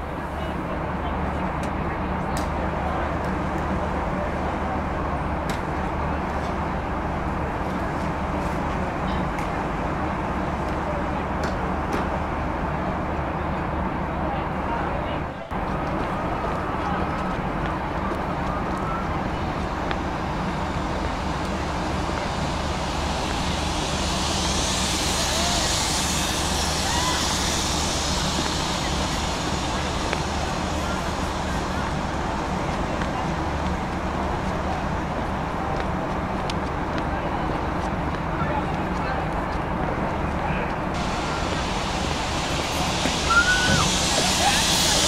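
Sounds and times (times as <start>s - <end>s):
outdoor background noise: 0.0s - 45.0s
hiss: 16.1s - 36.6s, 40.8s - 45.0s.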